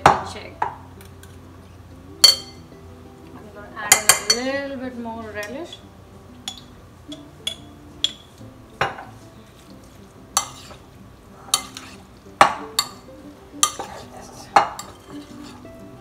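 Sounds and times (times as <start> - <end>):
metal spoon clinking on glass: 2.2 - 2.6, 6.4 - 8.3, 12.8 - 13.0.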